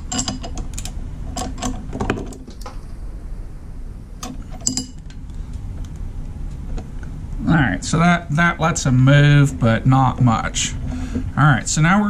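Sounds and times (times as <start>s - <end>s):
steel tools clinking: 0.0s - 1.8s, 4.2s - 5.2s.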